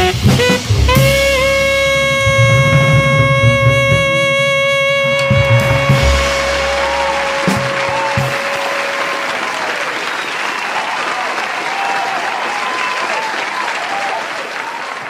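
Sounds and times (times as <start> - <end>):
band holding a note: 0.0 - 9.6
people cheering: 5.1 - 15.0
audience applauding: 5.2 - 15.0.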